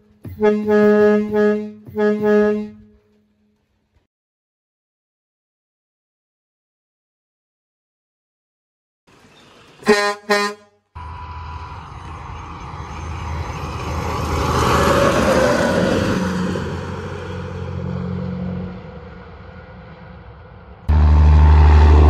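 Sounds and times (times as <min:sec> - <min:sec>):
truck air horn blasts: 0:00.2 - 0:03.1, 0:09.8 - 0:11.4, 0:20.9 - 0:22.0
truck driving past: 0:09.1 - 0:22.0.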